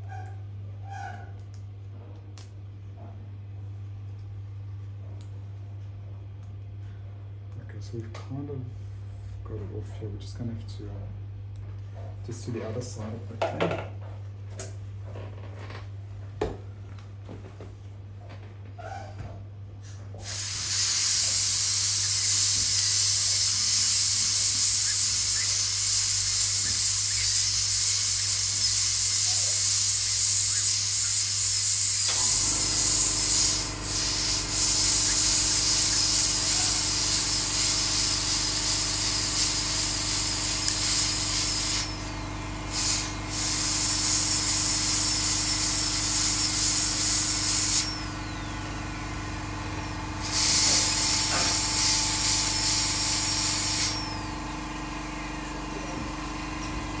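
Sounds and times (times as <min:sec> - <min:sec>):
dental drill hissing: 0:20.2 - 0:54.6.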